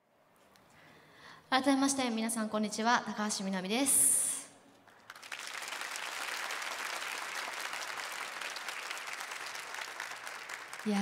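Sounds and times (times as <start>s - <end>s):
large audience applauding: 4.8s - 11.0s.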